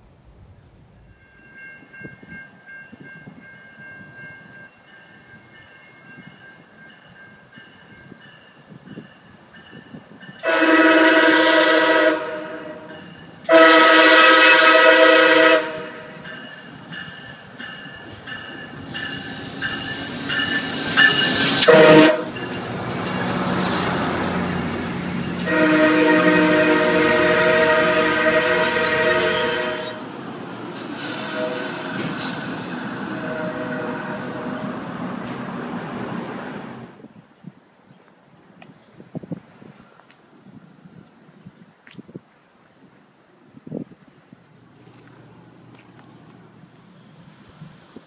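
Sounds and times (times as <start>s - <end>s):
locomotive engine and wheel noise: 1.2s - 37.3s, 38.0s - 48.0s
locomotive air horn blasts: 10.4s - 16.3s, 21.0s - 22.5s, 25.4s - 30.0s, 31.0s - 32.1s, 33.0s - 34.8s.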